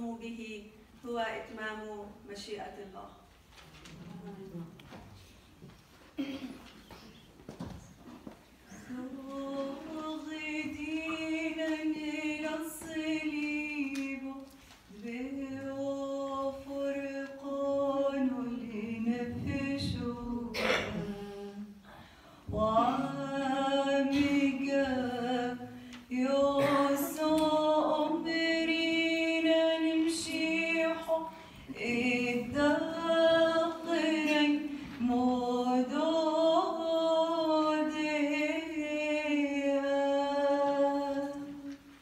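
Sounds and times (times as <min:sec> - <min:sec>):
voices singing a hymn: 0:22.5 - 0:29.0.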